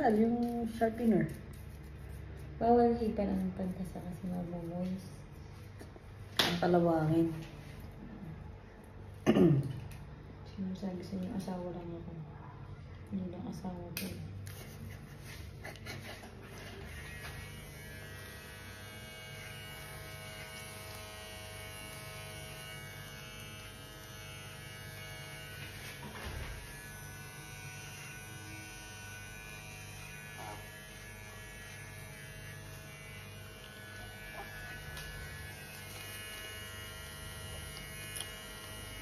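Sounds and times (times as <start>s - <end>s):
electric hair clipper buzzing: 16.4s - 39.0s.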